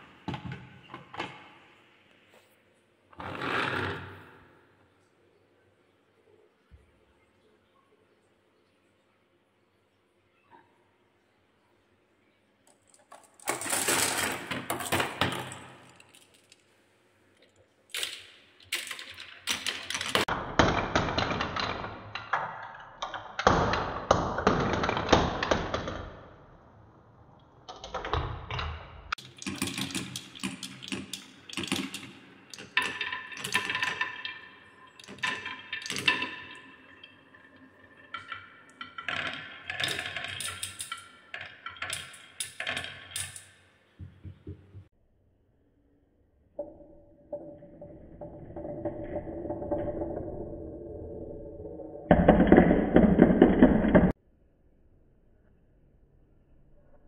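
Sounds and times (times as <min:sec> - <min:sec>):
marbles clattering down wooden tracks: 0:12.7 - 0:16.7, 0:17.9 - 0:26.0, 0:29.1 - 0:44.4, 0:47.3 - 0:50.9, 0:51.6 - 0:54.2.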